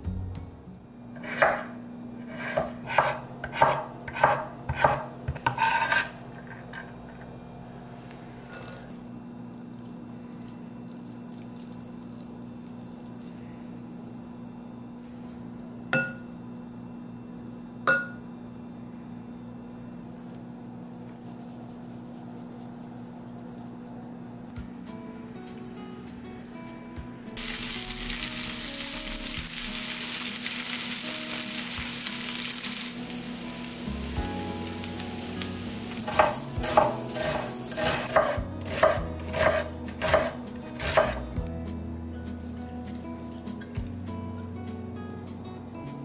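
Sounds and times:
knife chopping on a cutting board: 0:01.2 - 0:06.1, 0:36.1 - 0:41.2.

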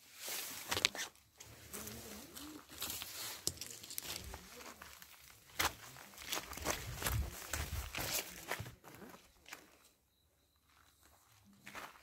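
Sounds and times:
brush rustling: 0:00.0 - 0:08.5
footsteps crunching on dry ground: 0:00.1 - 0:09.8, 0:10.6 - 0:12.0.

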